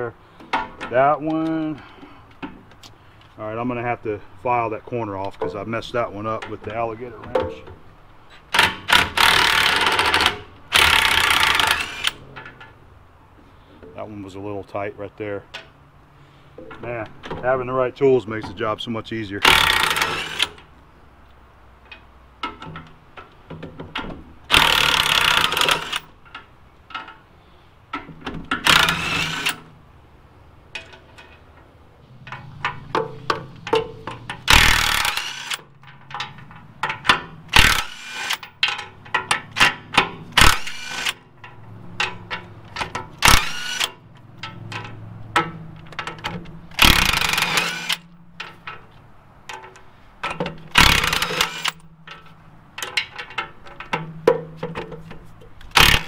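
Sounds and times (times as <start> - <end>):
impact wrench hammering: 32.3 - 41.2, 46.8 - 48.2, 50.3 - 52.2, 55.7 - 56.0.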